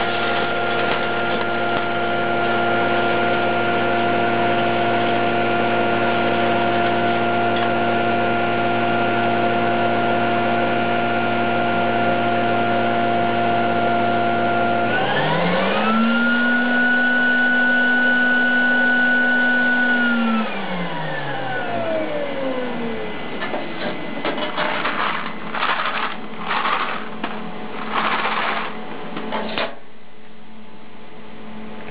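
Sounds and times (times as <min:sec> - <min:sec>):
vending machine motor hum: 0:00.0 - 0:12.7, 0:19.9 - 0:29.6.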